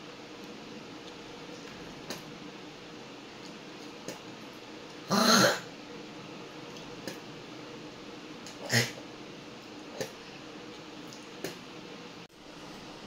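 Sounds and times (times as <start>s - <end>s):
woman spitting: 8.6s - 9.0s.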